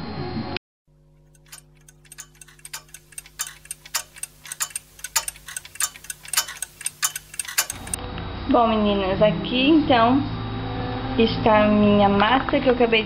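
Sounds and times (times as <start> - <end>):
clock ticking: 1.3 - 8.0.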